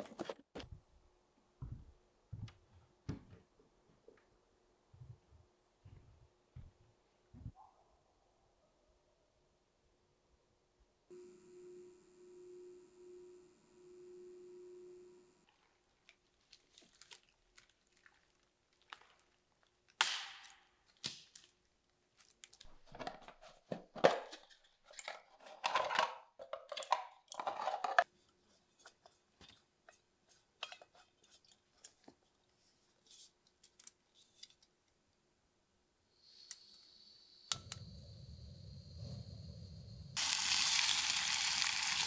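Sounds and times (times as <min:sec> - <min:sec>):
orange peel tearing and squishing: 0:15.7 - 0:20.0.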